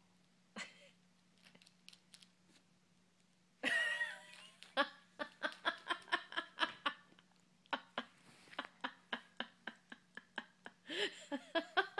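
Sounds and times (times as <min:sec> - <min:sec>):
plastic pill bottle rattling: 0:01.4 - 0:02.4.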